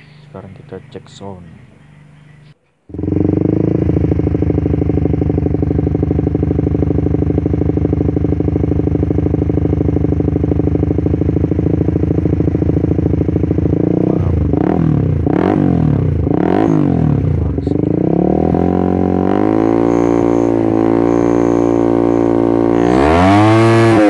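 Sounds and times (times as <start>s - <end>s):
motorcycle engine idling and revving: 0.0s - 24.0s.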